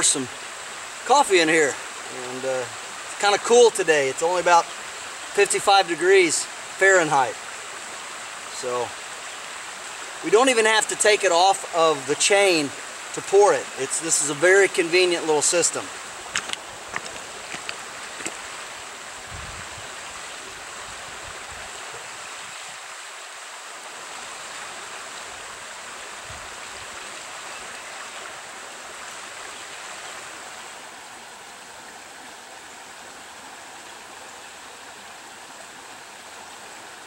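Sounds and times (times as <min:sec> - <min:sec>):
creek water flowing: 0:00.0 - 0:37.0.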